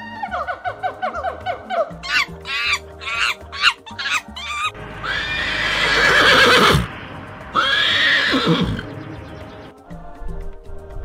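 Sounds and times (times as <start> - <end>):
horse whinnying: 2.0 - 6.9, 7.6 - 8.9.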